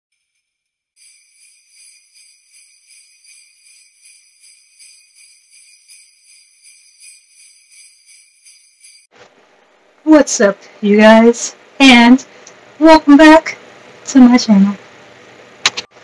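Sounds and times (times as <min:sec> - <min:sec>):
jingle bells shaken: 0:01.0 - 0:09.1.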